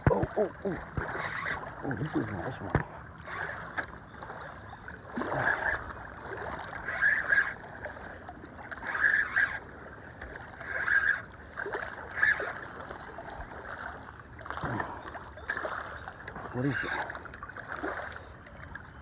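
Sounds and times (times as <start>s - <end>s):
water lapping and splashing: 0.0s - 19.0s
spinning reel cranking: 1.0s - 1.6s, 6.8s - 7.6s, 8.8s - 9.6s, 10.6s - 11.2s, 12.0s - 12.6s.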